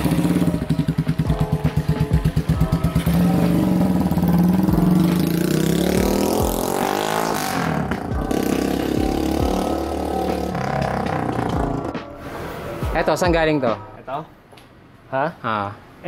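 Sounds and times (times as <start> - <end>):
motorcycle accelerating away: 0.0 - 12.0.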